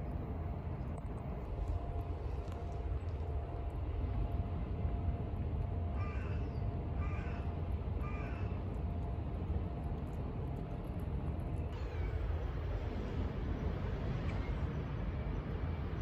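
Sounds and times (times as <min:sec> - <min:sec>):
steady low rumble: 0:00.0 - 0:16.0
crow cawing: 0:06.0 - 0:06.4, 0:07.0 - 0:08.5.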